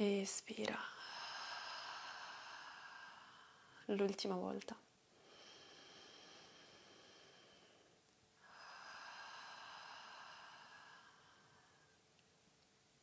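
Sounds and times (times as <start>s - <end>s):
woman breathing deeply: 0.9s - 3.9s, 5.1s - 12.1s.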